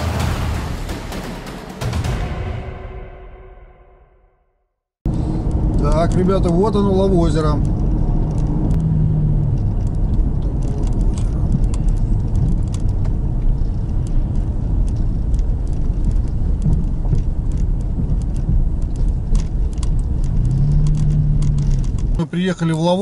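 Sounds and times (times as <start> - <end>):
engine and tyre rumble: 5.0 - 23.0
small sharp rattles and clicks: 9.5 - 22.2.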